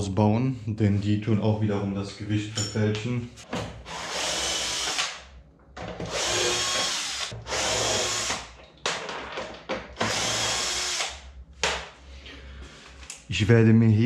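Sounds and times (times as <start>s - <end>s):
cordless drill running in spurts: 3.9s - 5.1s, 6.1s - 8.4s, 10.0s - 11.2s.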